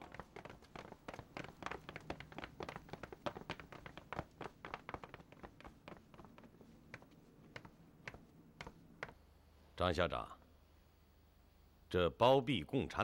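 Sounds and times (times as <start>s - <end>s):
footsteps on stone stairs: 0.0s - 9.2s.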